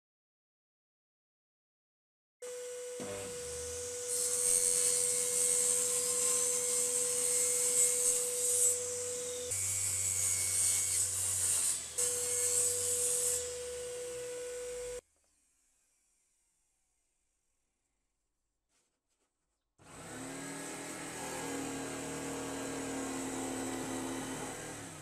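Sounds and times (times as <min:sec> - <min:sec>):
jigsaw cutting board: 0:03.0 - 0:09.2, 0:19.8 - 0:25.0.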